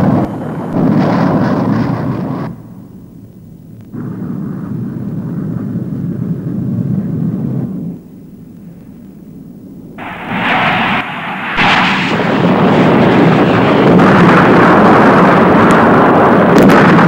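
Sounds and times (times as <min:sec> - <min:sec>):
jet engines droning overhead: 0:00.0 - 0:17.0
loud burst of noise: 0:10.0 - 0:16.3.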